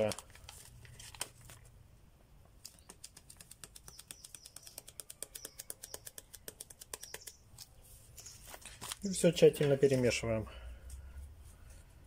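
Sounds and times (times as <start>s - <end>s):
sachet ticks and rustles: 0.0s - 1.8s, 2.4s - 10.1s.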